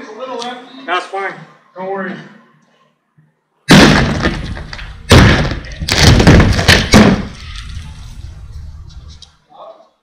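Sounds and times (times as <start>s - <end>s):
sledgehammer hitting wooden crate: 3.7s - 7.4s
wooden panels falling on pavement: 3.7s - 7.4s.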